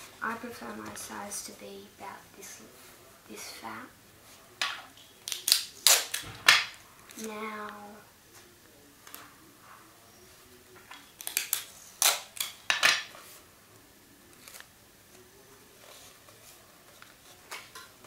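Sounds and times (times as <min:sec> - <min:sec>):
paper rustling: 0:14.3 - 0:17.8.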